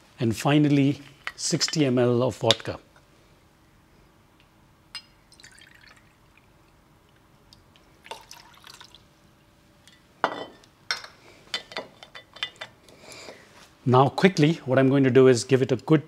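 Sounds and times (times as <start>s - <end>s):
liquid pouring and trickling: 5.3s - 6.7s, 8.0s - 9.1s.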